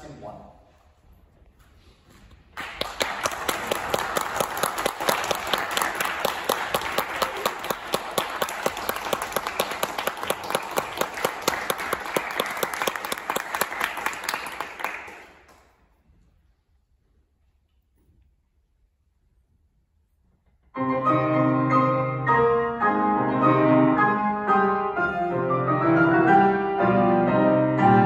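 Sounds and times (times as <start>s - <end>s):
audience applauding: 2.5s - 15.8s.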